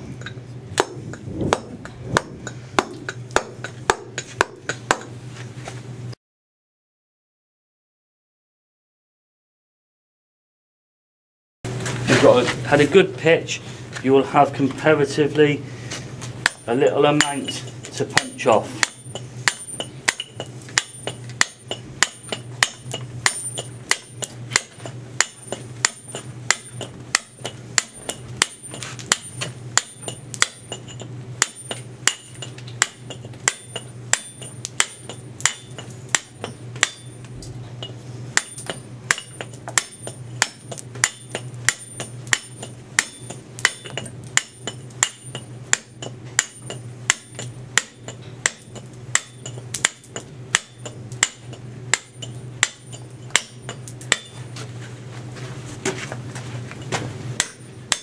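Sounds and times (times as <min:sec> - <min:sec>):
hammer striking steel punch: 0:00.2 - 0:05.2, 0:16.4 - 0:54.6, 0:56.9 - 0:58.0.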